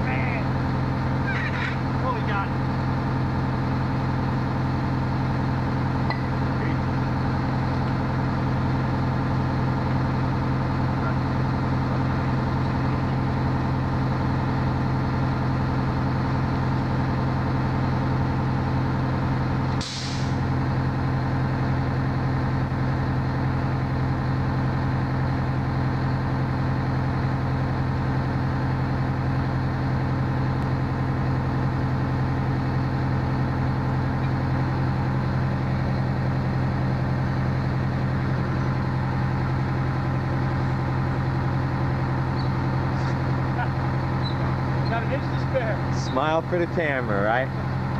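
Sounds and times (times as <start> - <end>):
fire engine idling: 0.0 - 47.9
short hiss: 19.8 - 20.4.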